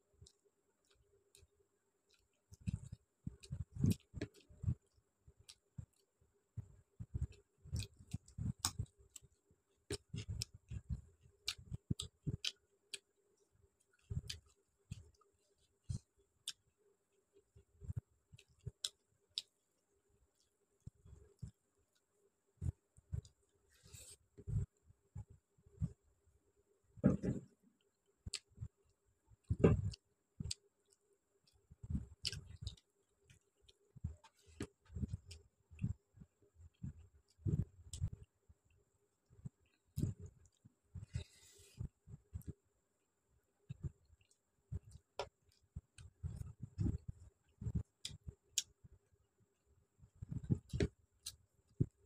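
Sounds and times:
chewing: 29.4s - 36.0s.

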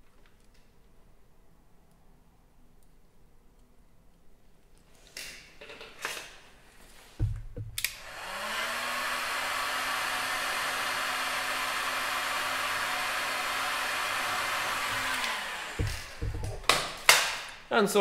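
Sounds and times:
knocks: 7.2s - 7.8s, 14.8s - 17.3s
heat gun fan blowing: 7.2s - 17.5s.

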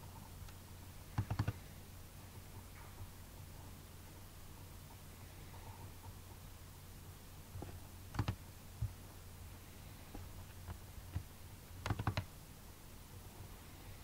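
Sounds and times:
steady low hum: 0.0s - 14.0s
computer mouse clicks: 1.2s - 1.6s, 7.6s - 9.0s, 10.4s - 12.3s.

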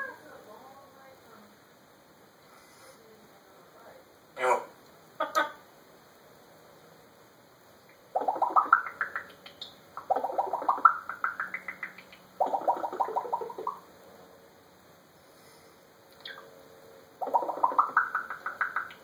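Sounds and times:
parrot stuttering pulses: 8.1s - 13.9s, 17.2s - 19.0s.

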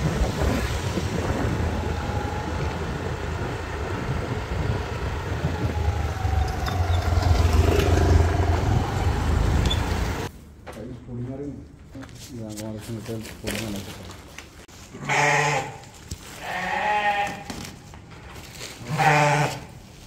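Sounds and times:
low traffic rumble: 0.0s - 14.7s
motorbikes riding past: 0.3s - 10.3s.

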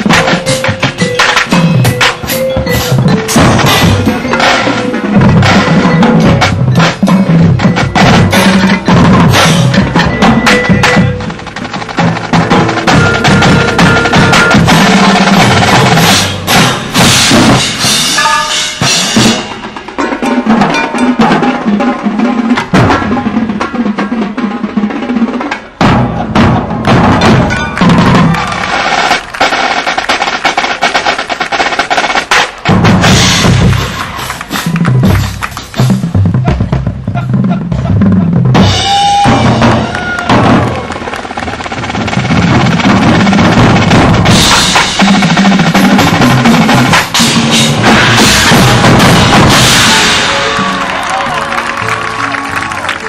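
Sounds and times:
low drum notes: 0.0s - 52.0s
snare drums rapid strokes: 26.9s - 50.4s.

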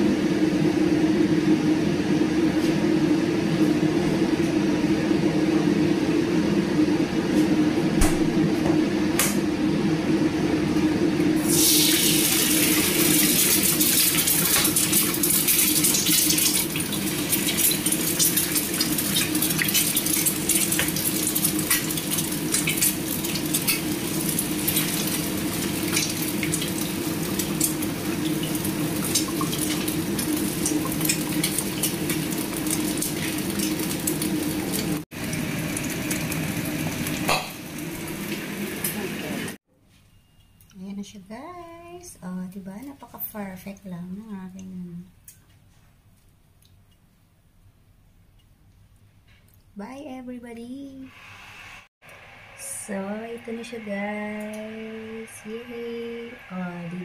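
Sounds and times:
egg sizzling in hot oil: 11.4s - 39.4s
low steady hum: 52.1s - 57.0s.

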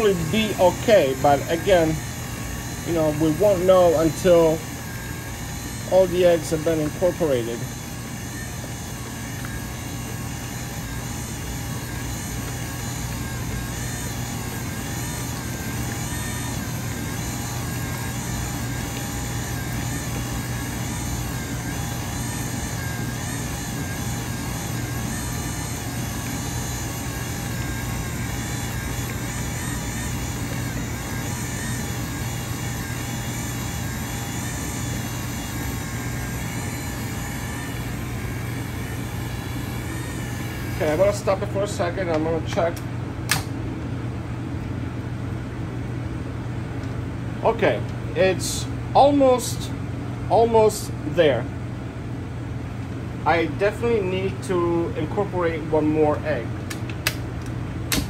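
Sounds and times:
stand mixer motor running: 0.0s - 42.2s.

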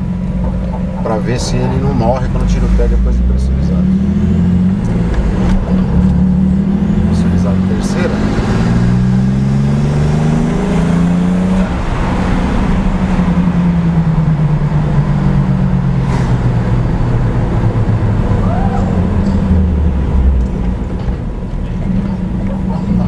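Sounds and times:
car engine revving: 0.0s - 23.0s.

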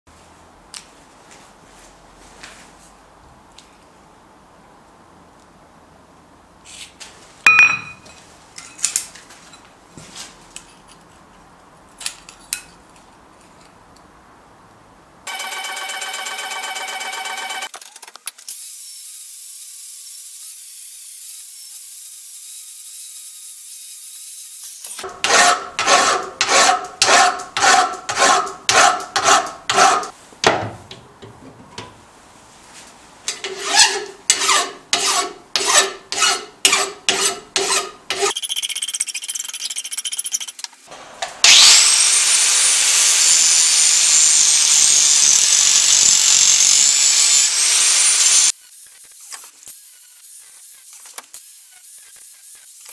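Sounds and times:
angle grinder cutting steel: 24.6s - 30.1s, 41.4s - 48.5s
hand file strokes on steel: 25.0s - 30.2s, 33.3s - 40.6s.

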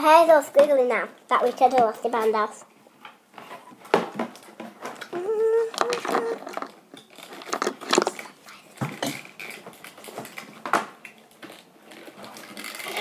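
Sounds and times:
toy packaging being handled: 4.9s - 8.4s.

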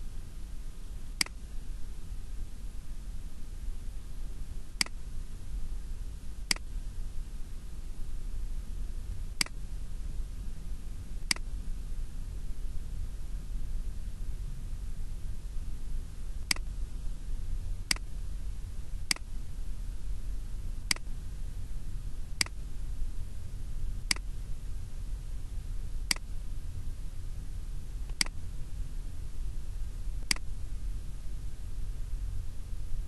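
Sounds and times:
steady low hum: 0.0s - 33.0s
mouse button clicking: 16.5s - 16.7s, 30.3s - 30.5s.

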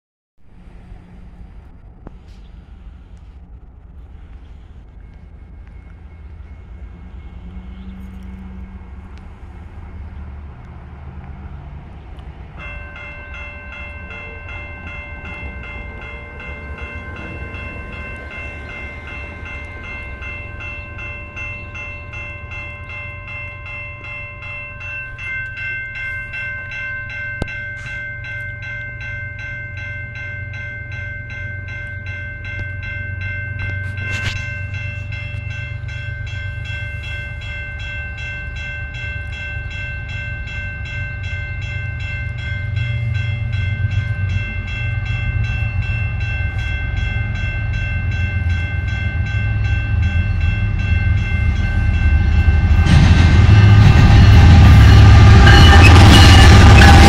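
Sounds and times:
low rumble: 0.4s - 12.6s, 42.0s - 57.0s
crossing warning bell ringing: 4.0s - 57.0s.

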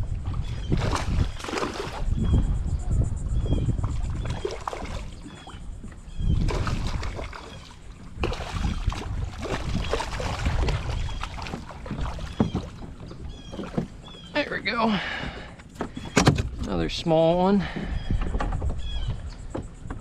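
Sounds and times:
wind rumble on microphone: 0.0s - 14.3s, 15.1s - 20.0s
fish splashing in water: 0.4s - 2.2s, 3.8s - 14.3s.

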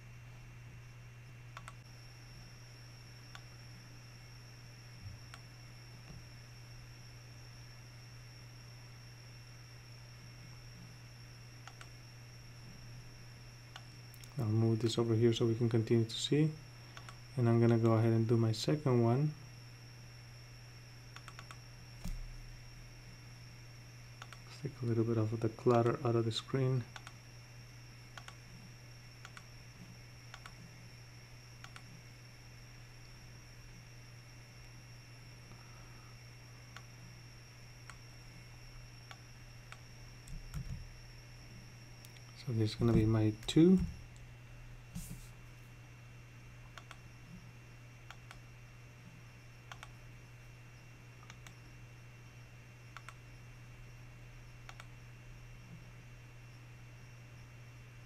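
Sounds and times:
low electrical hum: 0.0s - 58.0s
faint computer mouse clicks: 1.6s - 1.8s, 11.6s - 11.9s, 17.0s - 17.8s, 21.2s - 22.2s, 24.2s - 24.4s, 28.2s - 28.4s, 46.8s - 47.0s, 49.7s - 50.0s, 52.9s - 53.2s, 54.6s - 54.9s.

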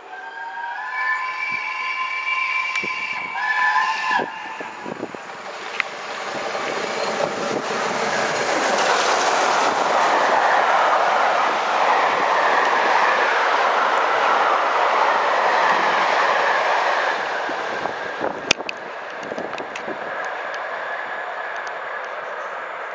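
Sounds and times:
steam locomotive whistle: 0.0s - 5.3s
train rushing past: 0.0s - 22.9s.

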